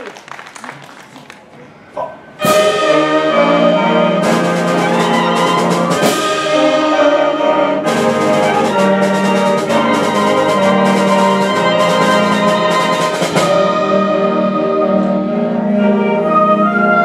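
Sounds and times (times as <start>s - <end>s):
percussion hits: 2.4s - 14.2s
concert band playing fanfare: 2.4s - 16.2s.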